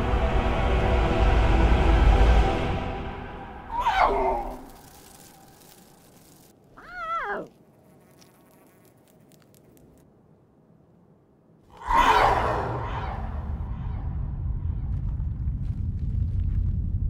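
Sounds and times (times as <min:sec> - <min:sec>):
lion cub roar: 0:06.8 - 0:07.5.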